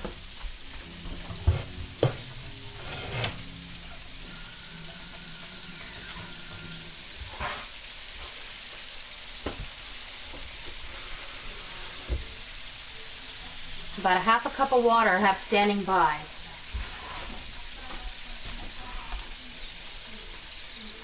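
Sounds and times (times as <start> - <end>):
dumplings sizzling in oil: 0.0 - 21.0.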